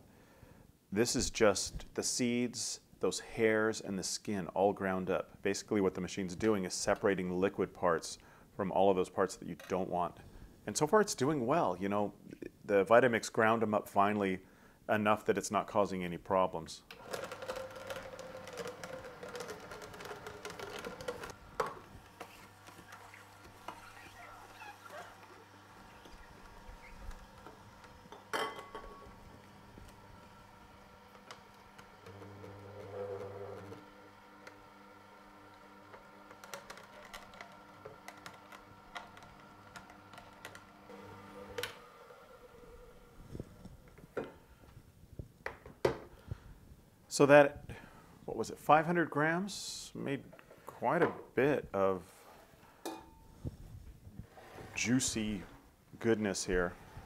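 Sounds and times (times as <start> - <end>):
juicer motor hum: 16.9 - 43.9.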